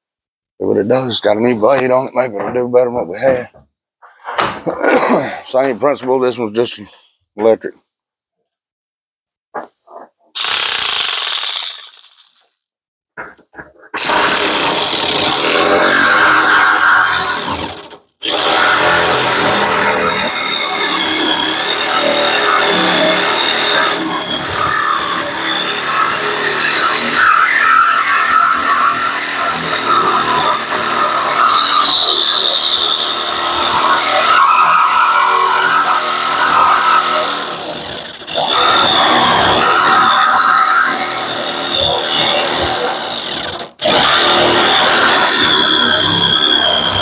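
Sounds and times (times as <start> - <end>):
electric jigsaw cutting sheet metal: 10.4 - 12.6, 14.0 - 47.0.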